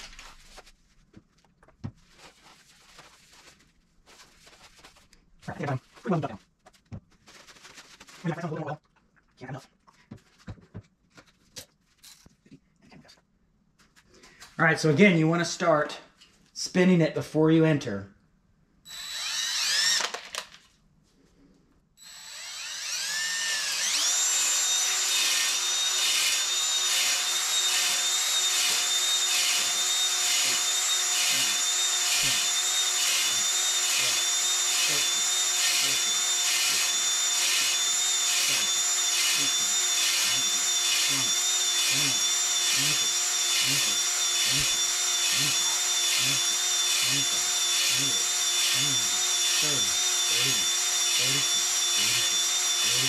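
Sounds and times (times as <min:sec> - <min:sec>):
cordless drill whining: 0:18.9 - 0:20.6, 0:22.0 - 0:53.0.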